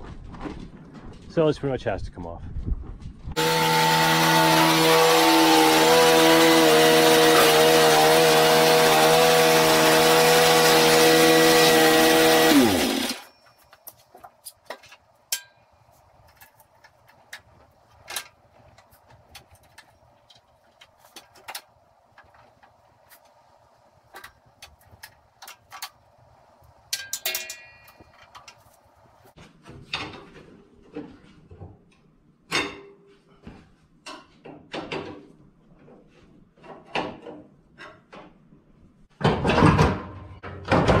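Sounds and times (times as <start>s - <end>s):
small engine running: 3.4s - 13.3s.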